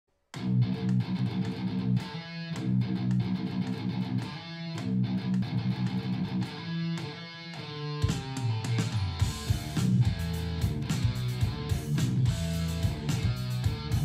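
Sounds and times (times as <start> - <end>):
electric guitar riff: 0.4 - 14.0.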